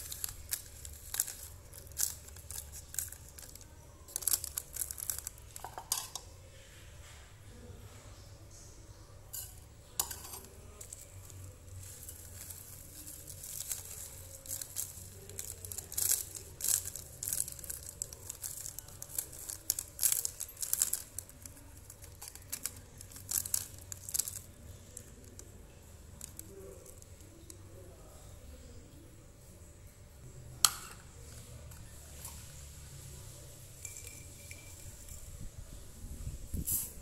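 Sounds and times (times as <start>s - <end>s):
sachet crinkling: 0.0s - 5.7s, 10.4s - 27.6s.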